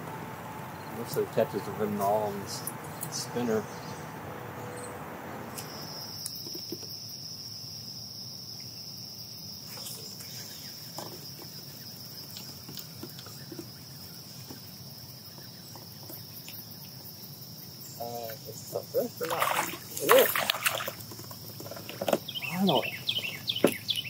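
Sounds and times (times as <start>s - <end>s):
high-pitched insect trill: 5.5s - 21.6s.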